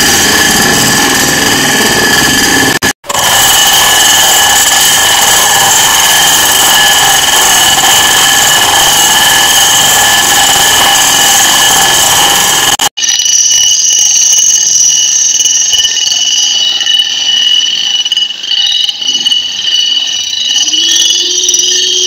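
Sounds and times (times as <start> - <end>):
food chopper motor whining: 2.6 - 12.7.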